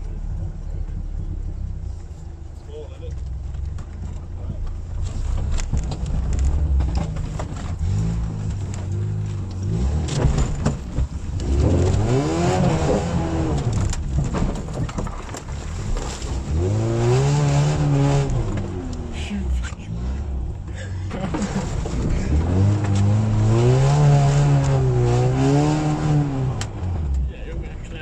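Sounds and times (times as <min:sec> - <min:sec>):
vehicle knocking over rough ground: 0:03.1 - 0:12.0, 0:12.7 - 0:16.6
engine revving under load: 0:05.6 - 0:14.2, 0:16.3 - 0:27.3.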